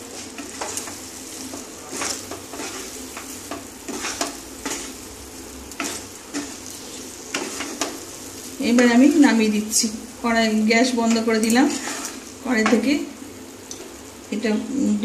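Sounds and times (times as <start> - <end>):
wooden spatula scraping a pan: 0.0 - 5.1, 5.7 - 9.8, 10.9 - 12.9
soft sizzle: 0.0 - 15.0.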